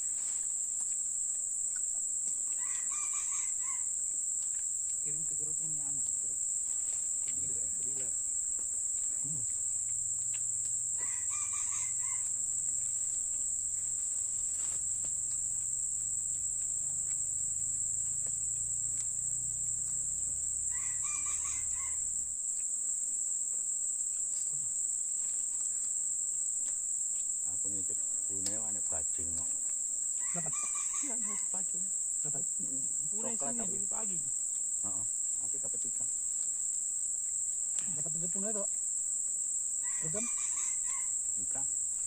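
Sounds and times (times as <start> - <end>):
high-pitched insect drone: 0.0 - 42.0
bird calling: 20.7 - 22.0.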